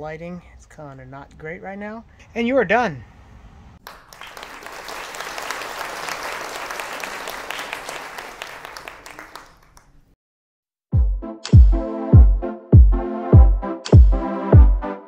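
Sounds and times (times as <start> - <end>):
crowd applause: 3.8 - 9.9.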